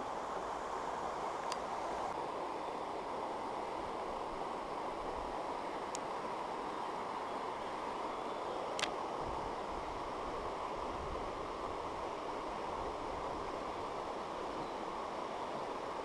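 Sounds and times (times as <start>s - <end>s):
light click: 5.9s - 6.1s, 8.8s - 9.0s.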